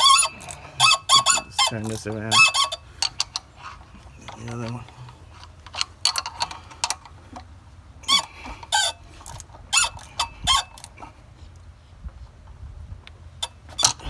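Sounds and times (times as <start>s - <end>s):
high metal squeaks: 0.0s - 2.8s.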